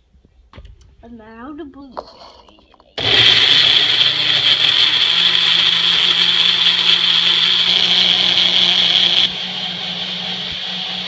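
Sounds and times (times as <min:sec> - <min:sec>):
blender running: 0:03.0 - 0:11.0.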